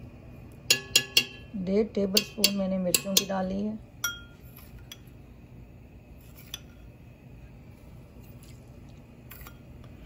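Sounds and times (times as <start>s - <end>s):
low steady hum: 0.0s - 10.0s
metal spoon clinking on glass: 0.7s - 1.5s, 4.0s - 5.1s.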